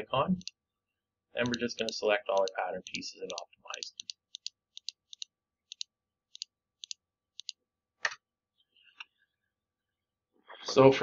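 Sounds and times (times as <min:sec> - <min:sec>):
computer mouse clicking: 0:01.4 - 0:07.6.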